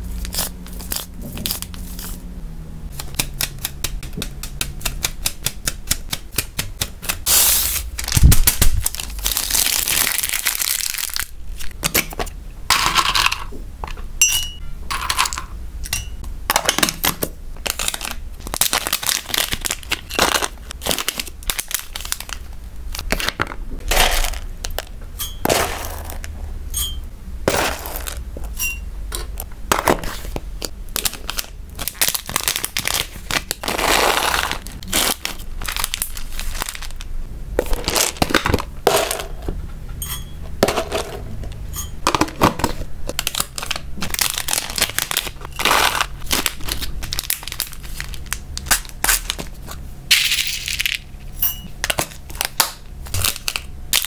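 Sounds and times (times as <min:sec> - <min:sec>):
plastic packaging crinkling: 0:07.2 - 0:12.2, 0:17.6 - 0:23.3, 0:30.0 - 0:38.7, 0:42.2 - 0:49.8, 0:51.8 - 0:54.0.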